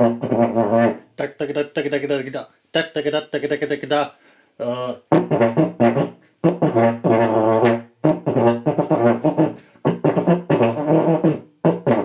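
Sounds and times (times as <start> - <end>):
tenor horn tongued notes: 0.0 - 1.9, 4.6 - 12.0.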